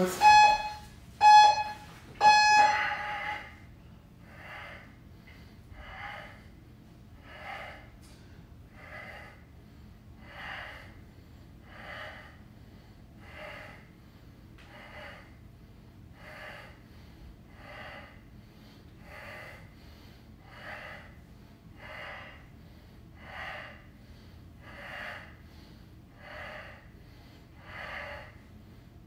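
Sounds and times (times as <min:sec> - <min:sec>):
interval timer beeps: 0:00.0 - 0:03.0
man breathing hard: 0:02.2 - 0:29.0.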